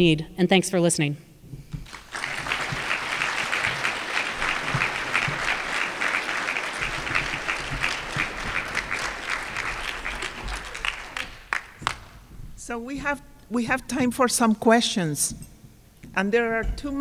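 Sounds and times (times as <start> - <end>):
audience applauding: 1.8 - 12.2.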